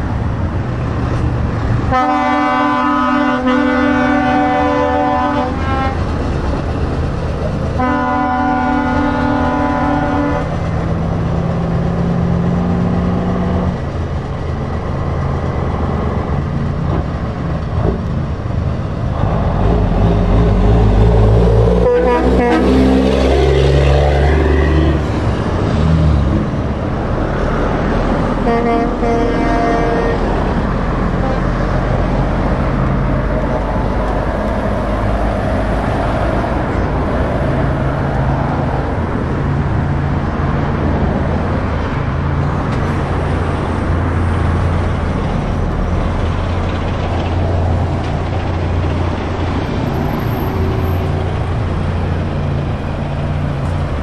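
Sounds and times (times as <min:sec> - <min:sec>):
truck diesel engines droning: 0:00.0 - 0:54.0
horn toot: 0:01.9 - 0:06.0, 0:07.8 - 0:10.5, 0:21.4 - 0:23.9, 0:28.4 - 0:30.3.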